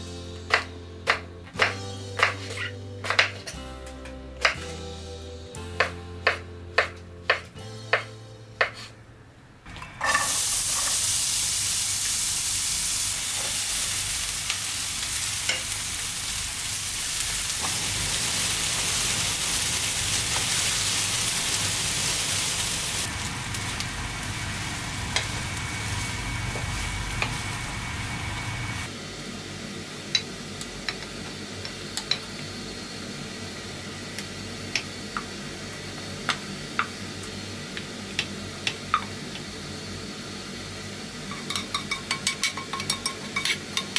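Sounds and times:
food sizzling in a frying pan: 10.0 - 43.9.

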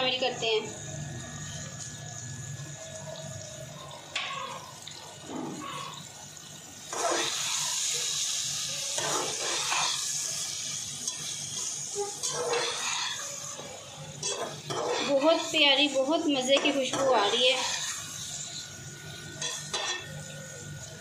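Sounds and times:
food sizzling in a pot: 0.0 - 21.0
spoon stirring and scraping pot: 11.0 - 15.5.

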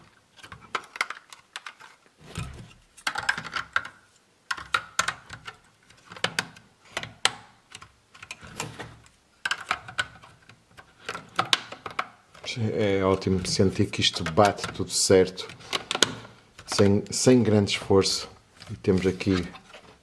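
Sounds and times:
plastic bricks clicking into place: 0.4 - 8.5, 9.4 - 12.5
handling noise: 7.7 - 17.9.

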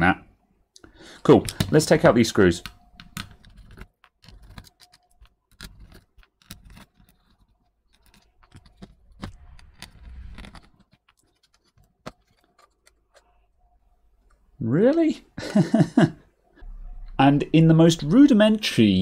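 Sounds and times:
screwdriver clicks and scrapes: 3.0 - 13.3.

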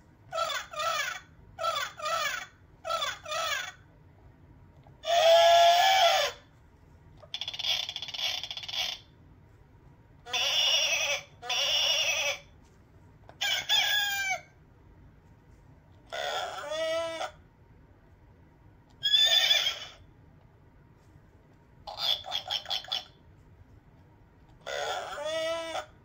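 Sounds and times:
recorded animal sounds from toy speaker: 0.3 - 6.5, 7.2 - 9.2, 10.2 - 12.6, 13.3 - 14.6, 16.0 - 17.5, 18.9 - 20.1, 21.8 - 23.3, 24.5 - 26.0.

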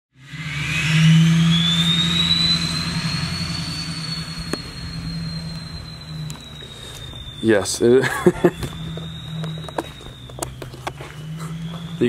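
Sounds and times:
diesel engine drone: 0.1 - 12.0
turbo whistle: 0.2 - 12.0.

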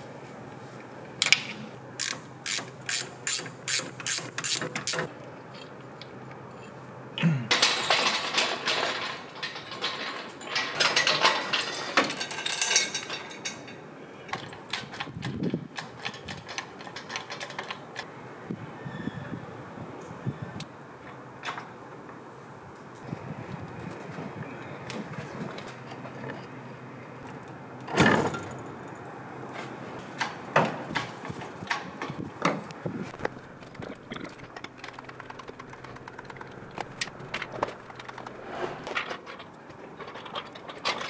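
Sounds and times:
ratchet spanner clicking: 2.0 - 5.1
chain jangling: 7.6 - 13.7.

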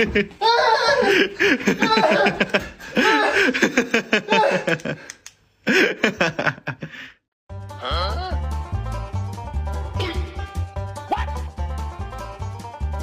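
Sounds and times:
person laughing hard: 0.0 - 5.1, 5.7 - 7.2
music: 7.5 - 13.0.

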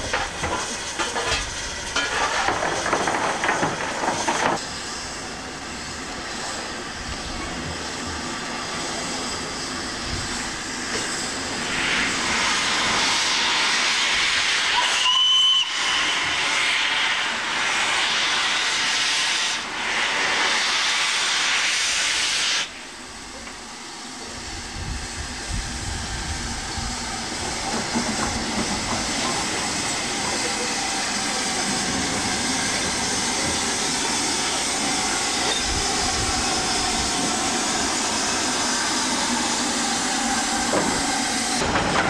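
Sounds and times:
steam hissing: 0.0 - 42.0
short high whistle: 14.7 - 16.2.

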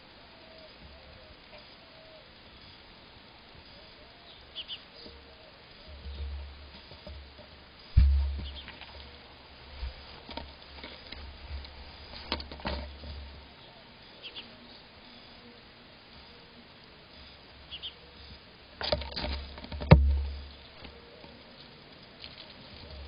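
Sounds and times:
knocks on camera body: 8.0 - 8.6.

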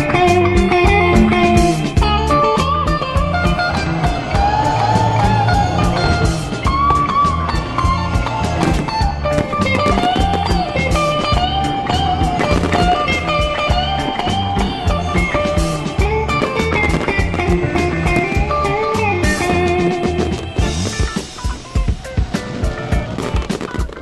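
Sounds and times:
guitar music with bass and drums: 0.0 - 24.0.

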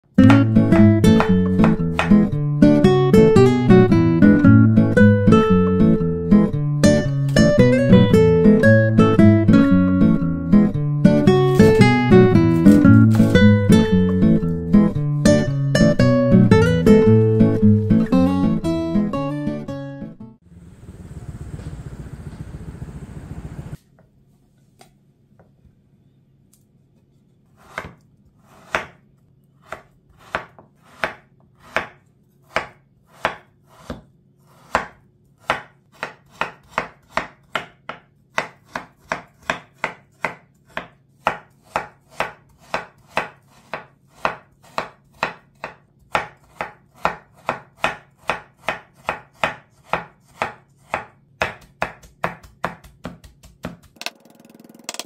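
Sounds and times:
knife chopping on wooden board: 0.2 - 2.3, 12.4 - 13.4, 27.6 - 29.0, 29.6 - 54.1.

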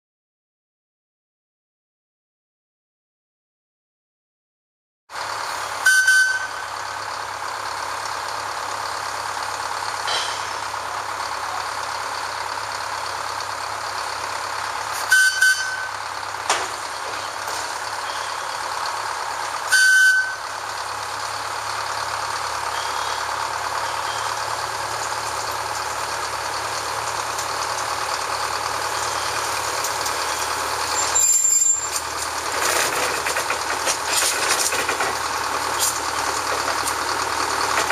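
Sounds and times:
locomotive engine running: 5.1 - 37.9
locomotive horn toots: 5.8 - 6.7, 15.0 - 15.9, 19.7 - 20.4
high squeal: 18.0 - 18.7, 22.7 - 24.5, 30.2 - 32.0.

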